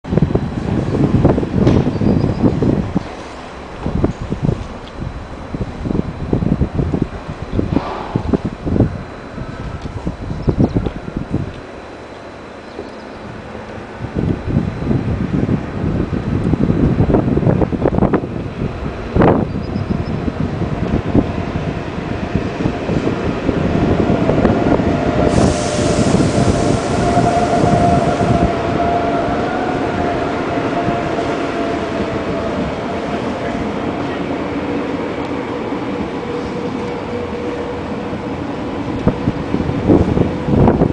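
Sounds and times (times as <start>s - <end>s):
train wheels rumbling on rails: 0.0s - 40.9s
electric train whine: 0.1s - 40.9s
hiss: 25.2s - 28.3s.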